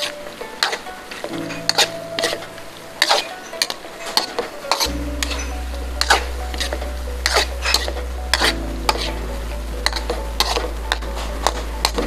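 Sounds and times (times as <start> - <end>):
food sizzling: 0.0 - 12.0.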